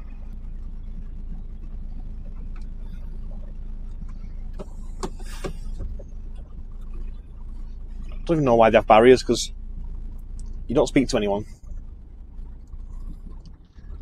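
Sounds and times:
lorry diesel engine idling: 0:00.0 - 0:14.0.

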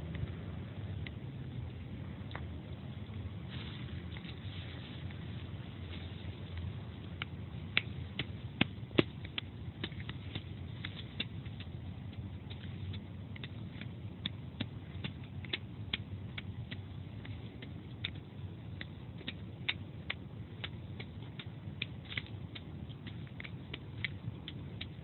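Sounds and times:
low steady rumble: 0:00.0 - 0:25.0
footsteps on dry leaves and twigs: 0:03.5 - 0:06.3.

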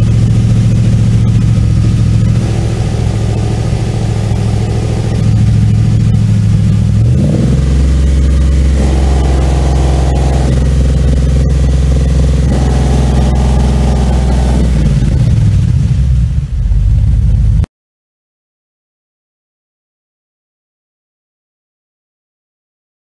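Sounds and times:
car engine idling: 0:00.0 - 0:17.7.

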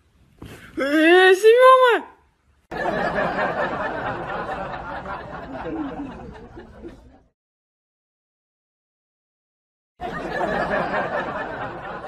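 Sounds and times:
people chuckling and chattering: 0:02.8 - 0:07.3, 0:10.0 - 0:12.0.

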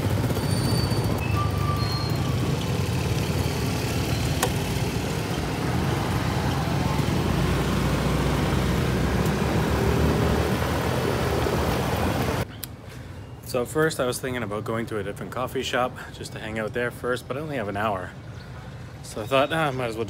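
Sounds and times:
motor scooter engine running: 0:00.0 - 0:12.4
road noise: 0:00.0 - 0:20.0.

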